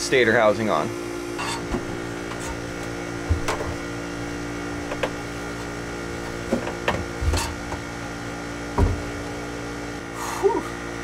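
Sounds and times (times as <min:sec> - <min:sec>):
steady hum: 0:00.0 - 0:11.0
metal knocks and clunks: 0:01.4 - 0:03.9, 0:04.7 - 0:07.9, 0:08.7 - 0:09.4.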